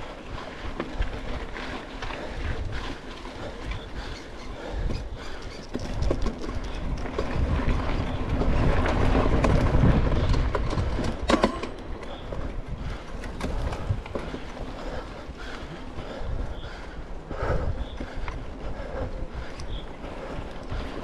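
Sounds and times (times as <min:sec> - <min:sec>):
bike tyres crunching over gravel: 0:00.0 - 0:21.0
bike frame rattling and clicking: 0:00.4 - 0:15.6.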